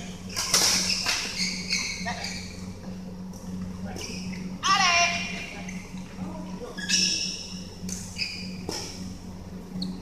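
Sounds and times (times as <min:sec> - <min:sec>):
sneakers squeaking on floor: 0:00.3 - 0:02.6, 0:06.7 - 0:07.5, 0:08.1 - 0:09.0, 0:09.7 - 0:10.0.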